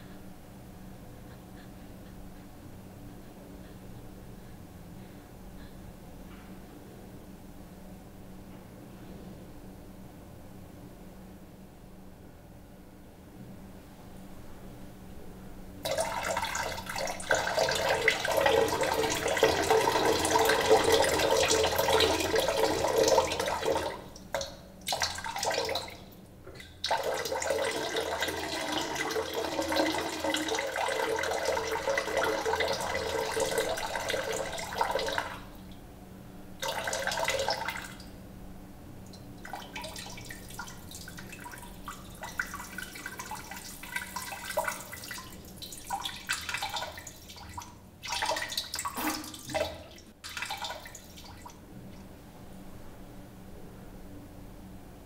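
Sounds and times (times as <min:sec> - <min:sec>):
water trickling and dripping: 0:39.1 - 0:51.6
water running and splashing: 0:39.5 - 0:51.5.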